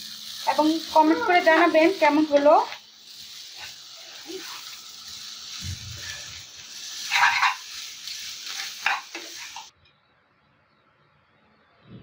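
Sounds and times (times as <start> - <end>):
noodles sizzling in pan: 0.0 - 9.7
spoon scraping pan: 1.8 - 4.8, 5.4 - 9.7.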